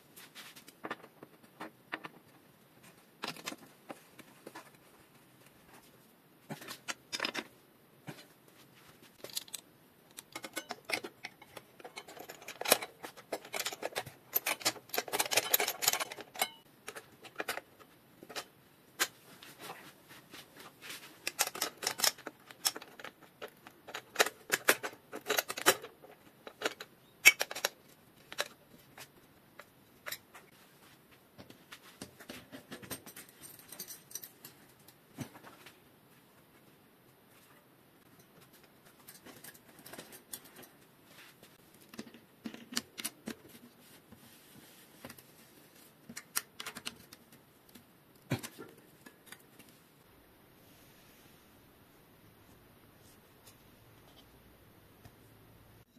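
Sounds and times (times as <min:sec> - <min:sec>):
metallic clicks and rattles of bike tools: 0:09.2 - 0:17.7, 0:21.2 - 0:28.6.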